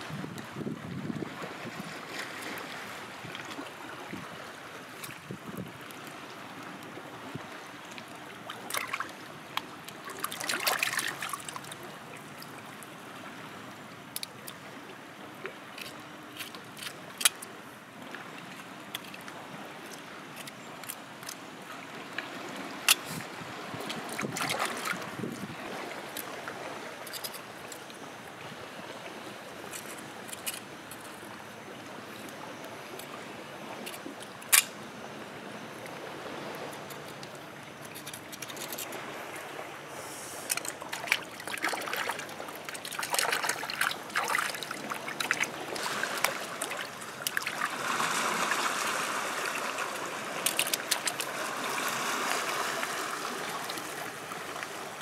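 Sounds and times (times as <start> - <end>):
water trickling over rocks: 7.8 - 13.0, 18.1 - 23.2, 40.4 - 54.9
water splashing: 8.4 - 12.8, 20.3 - 27.7, 36.8 - 55.0
knife clicks and scrapes: 27.0 - 27.8, 37.8 - 39.0.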